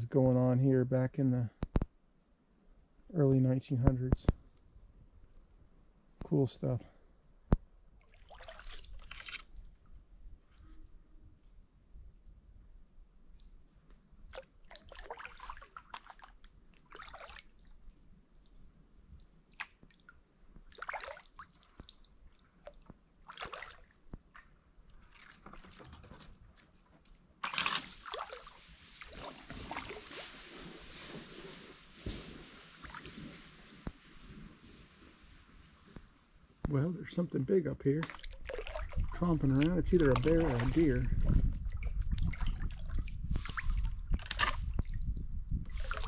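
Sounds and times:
water splashing: 8.0 - 9.6, 14.3 - 18.4, 19.2 - 25.9, 27.4 - 34.3, 38.0 - 45.1, 45.7 - 46.0
paddle strokes in water: 8.1 - 9.8, 14.2 - 17.9, 20.6 - 36.0, 38.0 - 46.0
water dripping off paddle: 38.0 - 45.0.

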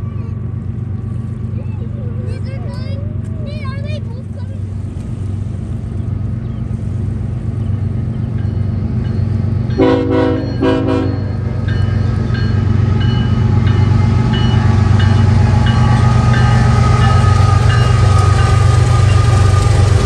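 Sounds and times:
locomotive engine rumble: 0.0 - 20.0
train horn blasts: 9.8 - 11.4.

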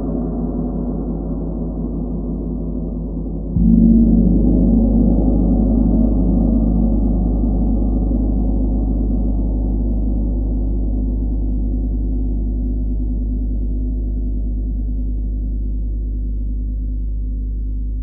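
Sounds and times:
gong ringing: 3.6 - 10.1.

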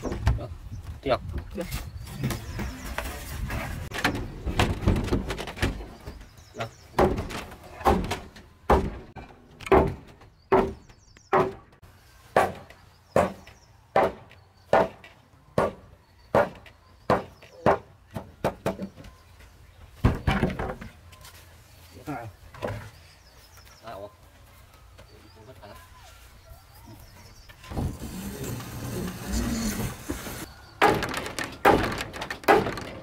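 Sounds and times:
blows knocking on timber: 6.9 - 11.8.

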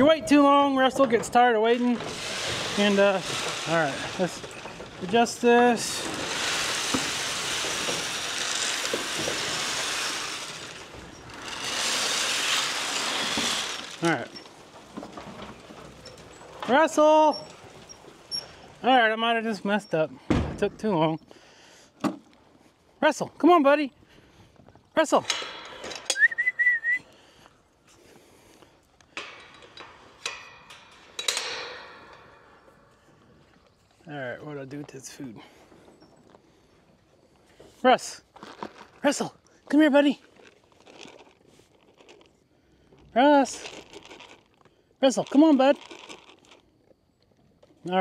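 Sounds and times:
feed pellets pouring into trough: 1.3 - 18.6
person whistling: 26.1 - 27.1.

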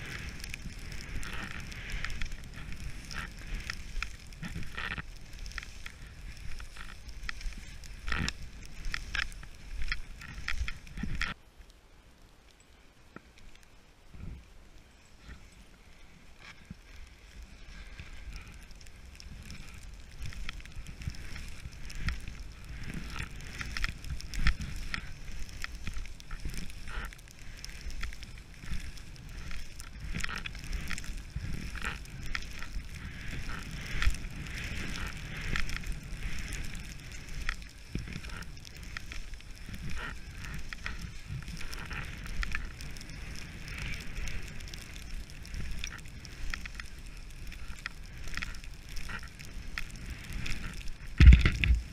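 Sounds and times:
skis scraping over packed snow: 0.0 - 11.4, 12.8 - 51.9
wind rumble on microphone: 0.0 - 11.4, 13.1 - 51.9.

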